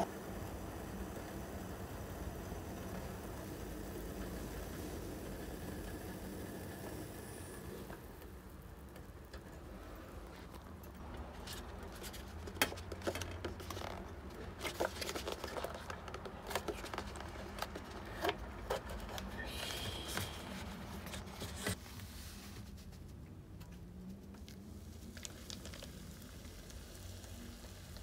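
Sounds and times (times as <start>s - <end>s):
objects clicking and scraping: 10.4s - 21.8s.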